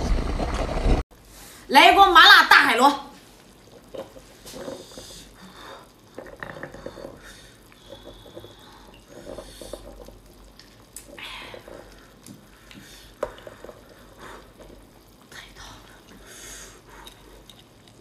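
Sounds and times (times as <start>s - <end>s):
wet sticky clicks of snails: 7.7s - 16.3s.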